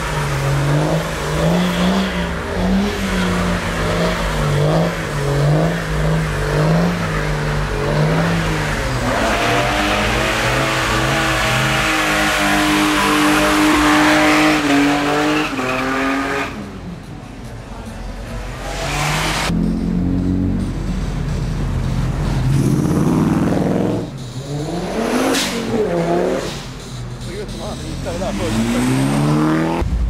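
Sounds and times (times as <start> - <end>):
car engine revving: 0.0 - 30.0.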